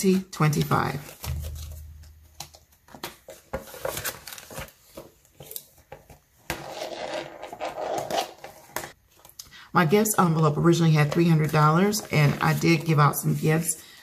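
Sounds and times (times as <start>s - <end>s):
banknotes rustling: 0.0s - 6.1s, 10.3s - 14.0s.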